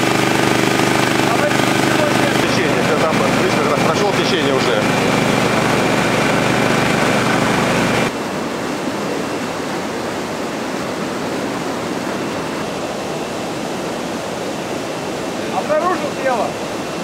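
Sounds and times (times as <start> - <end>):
low hum: 0.0 - 8.1
river rapids roaring: 0.0 - 17.0.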